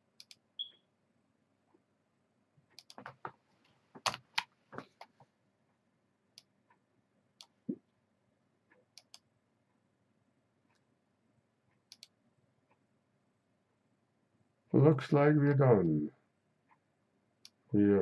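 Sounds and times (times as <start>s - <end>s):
computer mouse clicks: 0.2s - 0.8s, 2.7s - 3.2s, 8.7s - 9.3s, 11.8s - 12.2s.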